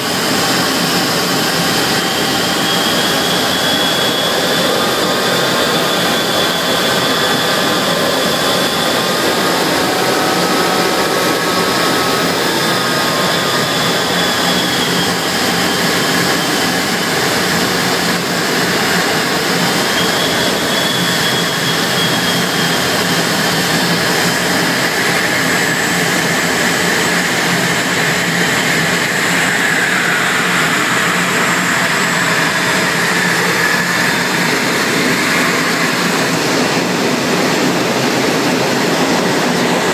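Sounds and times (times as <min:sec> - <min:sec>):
faint turbine whine: 0:00.0 - 0:39.9
jet engine and airflow roar: 0:00.0 - 0:39.9.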